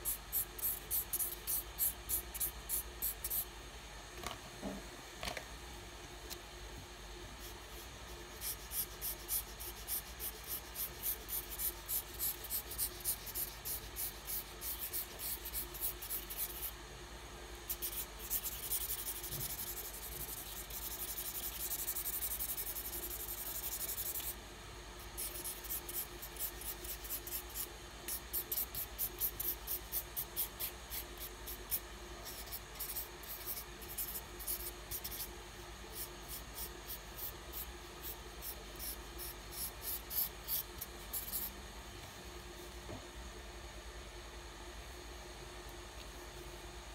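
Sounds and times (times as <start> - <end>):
colouring pencil scribbling on paper: 7.4 - 16.8, 17.7 - 24.3, 25.1 - 35.3, 36.0 - 41.5
pencil rubbing on paper: 7.4 - 16.8, 17.7 - 24.3, 25.1 - 35.3.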